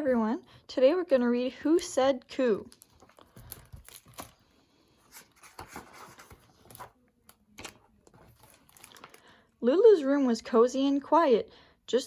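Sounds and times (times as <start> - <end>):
book pages turning: 2.6 - 9.3.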